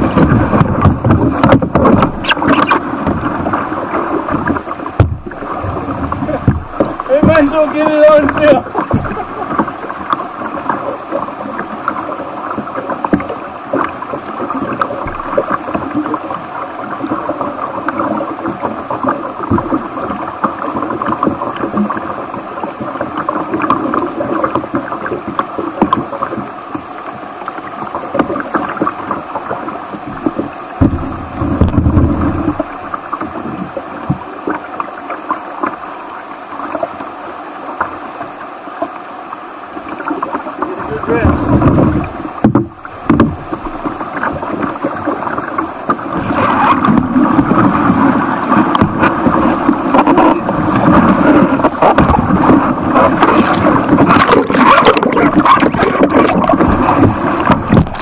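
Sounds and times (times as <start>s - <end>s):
stream rushing over rocks: 0.0s - 58.0s.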